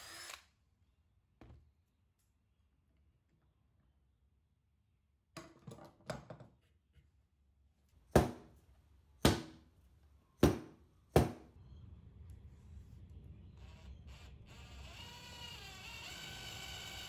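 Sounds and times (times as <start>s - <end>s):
faint low hum: 8.7s - 17.0s.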